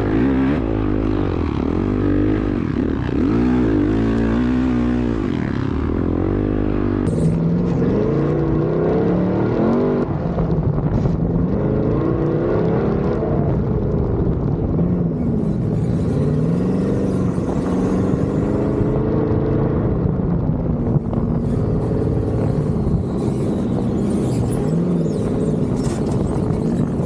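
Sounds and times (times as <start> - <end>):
engine revving: 0.0 - 10.1, 14.7 - 20.1, 20.8 - 27.0
wind rush: 0.0 - 27.0.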